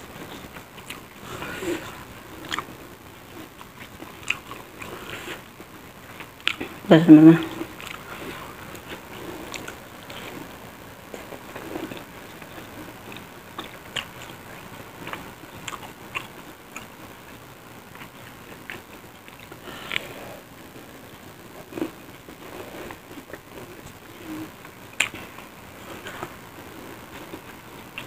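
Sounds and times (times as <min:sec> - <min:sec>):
wet chewing: 0:03.3 - 0:05.4, 0:07.4 - 0:10.4.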